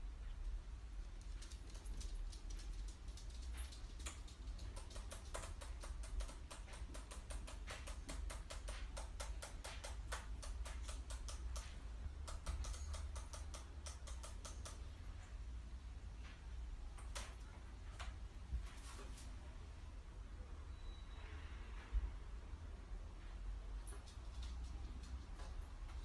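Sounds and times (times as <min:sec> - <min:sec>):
laptop keyboard keys clicking: 0:01.2 - 0:14.8.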